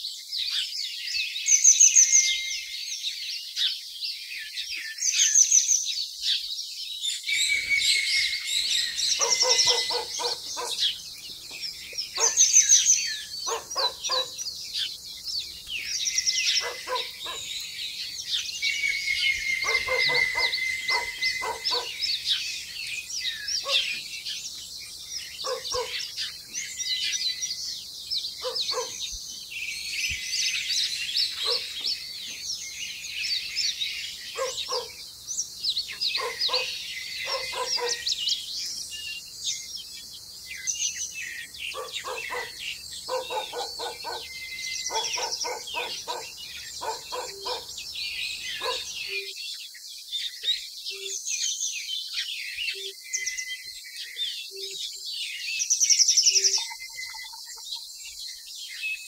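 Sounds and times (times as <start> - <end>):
birds chirping: 0.0 - 59.0
harsh bird call: 7.3 - 11.0, 18.6 - 22.8.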